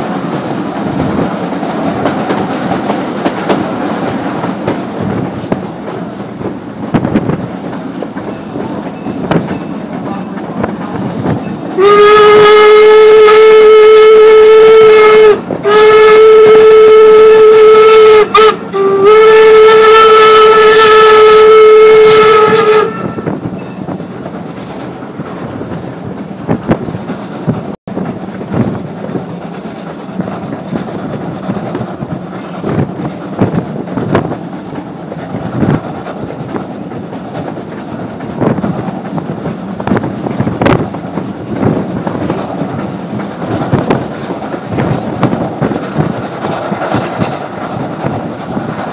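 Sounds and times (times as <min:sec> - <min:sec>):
wheels clicking over rail joints: 0:00.0 - 0:11.8, 0:22.9 - 0:48.9
rail car rumbling: 0:00.0 - 0:48.9
steam locomotive whistle: 0:11.6 - 0:23.9.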